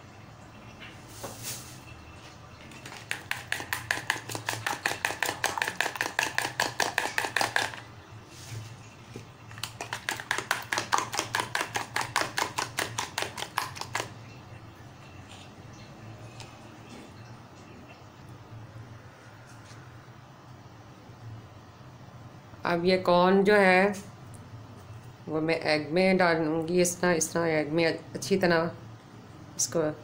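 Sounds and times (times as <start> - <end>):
fork whisking egg in glass bowl: 2.7 - 7.8, 9.5 - 14.1.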